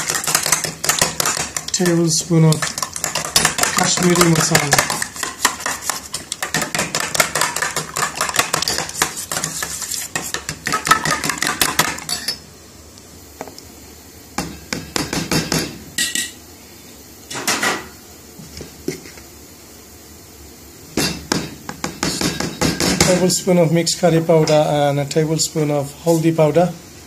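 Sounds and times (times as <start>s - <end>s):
utensil scraping a bowl: 0.0s - 11.5s
eggs beaten in a bowl: 0.0s - 12.2s.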